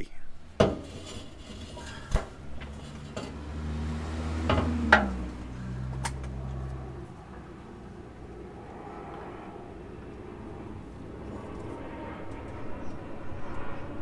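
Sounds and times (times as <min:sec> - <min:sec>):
low vehicle engine hum: 0:00.3 - 0:14.0
sharp metal knocks: 0:00.6 - 0:01.2, 0:04.3 - 0:06.4.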